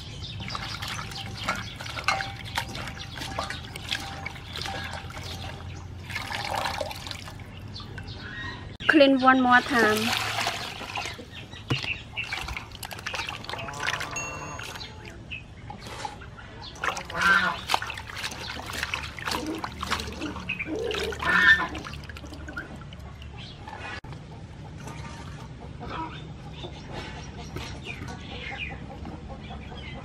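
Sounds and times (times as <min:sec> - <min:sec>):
water splashing in steel bowl: 0:00.0 - 0:08.2, 0:09.4 - 0:15.2, 0:16.7 - 0:23.8.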